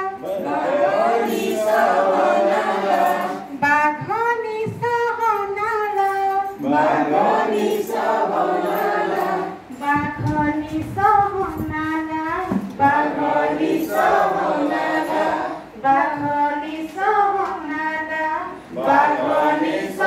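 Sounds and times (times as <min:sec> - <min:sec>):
group singing in unison: 0:00.0 - 0:03.7, 0:06.6 - 0:09.9, 0:12.4 - 0:20.0
woman singing into a microphone: 0:03.0 - 0:06.6, 0:09.4 - 0:13.2, 0:15.5 - 0:18.8.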